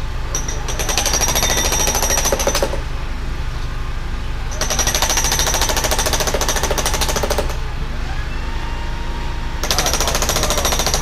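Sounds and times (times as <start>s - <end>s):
excavator engine drone: 0.0s - 11.0s
hydraulic hammer pounding pipe: 0.3s - 2.9s, 4.5s - 7.6s, 9.6s - 11.0s.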